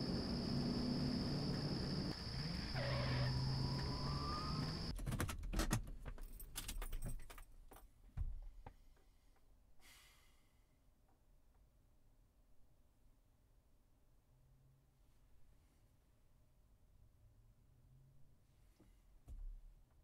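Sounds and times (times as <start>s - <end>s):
keys jangling and clicking: 5.2s - 7.5s.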